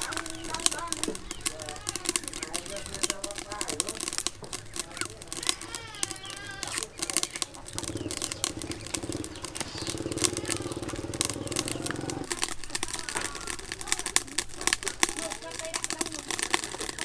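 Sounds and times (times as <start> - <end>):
small engine droning: 7.7 - 12.4.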